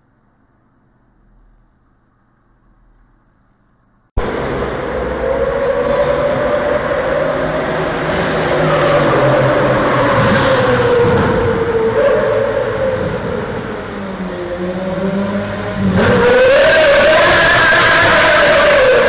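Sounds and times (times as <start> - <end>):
engine running at high revs: 4.2 - 19.0.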